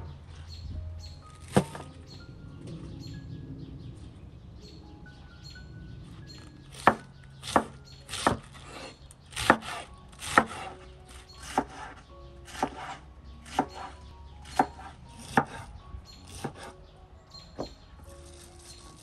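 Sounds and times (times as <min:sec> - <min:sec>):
knife chopping cabbage on board: 0:06.8 - 0:15.7, 0:16.3 - 0:16.7.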